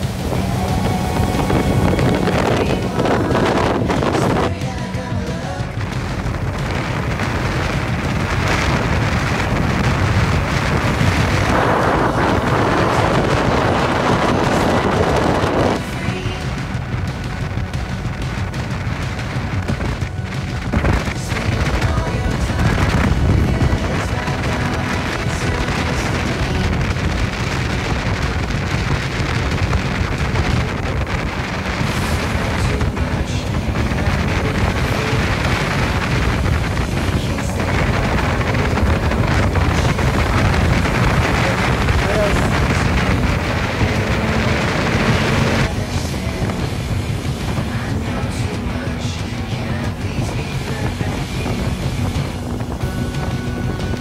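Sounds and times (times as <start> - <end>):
water rushing and spray: 0.0 - 54.0
wind rumbling on microphone: 0.0 - 54.0.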